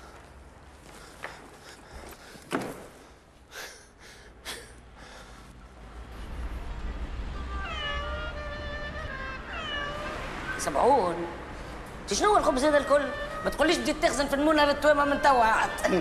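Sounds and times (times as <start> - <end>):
kitten meowing: 7.4 - 10.3.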